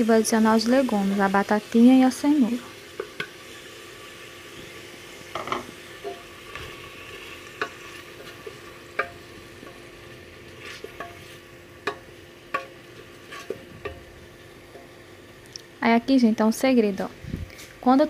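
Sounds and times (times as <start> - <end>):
food sizzling in a pot: 0.0 - 18.0
spoon knocking against metal pot: 9.0 - 9.8, 11.8 - 12.8.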